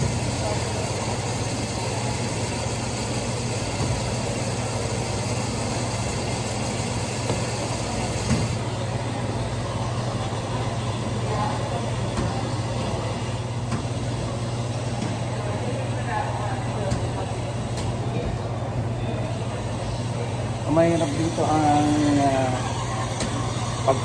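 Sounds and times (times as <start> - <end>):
washers and dryers humming: 0.0 - 24.0.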